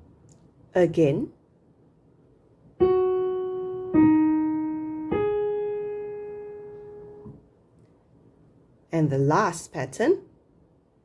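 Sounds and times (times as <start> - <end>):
piano chords: 2.8 - 7.5.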